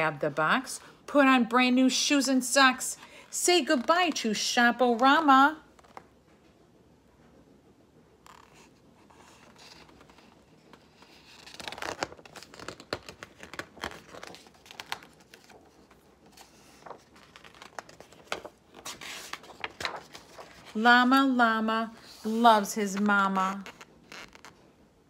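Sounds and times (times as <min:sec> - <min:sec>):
book pages rustling: 0:05.7 - 0:06.4, 0:08.2 - 0:24.7.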